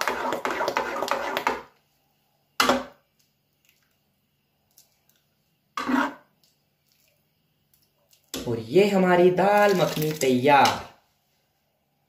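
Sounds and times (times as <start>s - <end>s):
metal ladle scraping pan: 5.8s - 6.3s.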